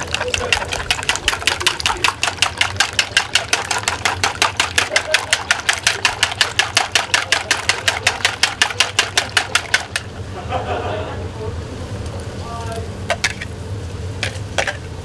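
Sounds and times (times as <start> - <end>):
whisk beating eggs in a bowl: 0.0 - 10.1.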